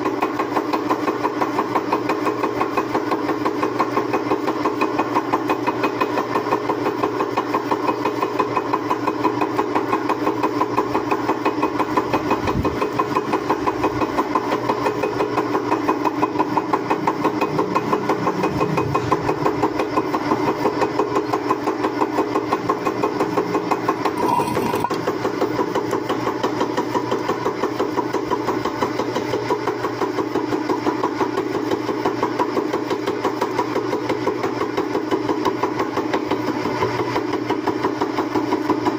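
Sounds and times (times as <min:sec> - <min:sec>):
milling machine cutting metal: 0:11.2 - 0:25.5.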